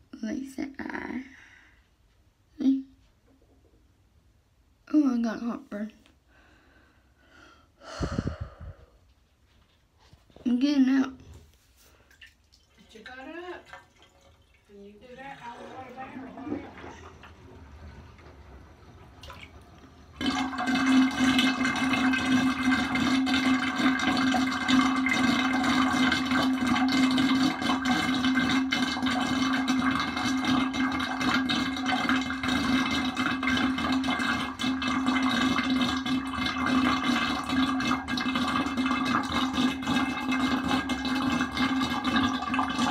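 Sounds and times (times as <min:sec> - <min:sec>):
water running hard: 0:12.8 - 0:17.8, 0:19.1 - 0:42.9.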